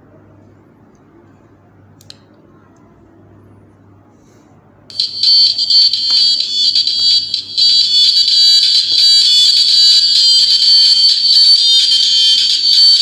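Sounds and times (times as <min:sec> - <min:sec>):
tinny music from small speaker: 0:04.9 - 0:13.0.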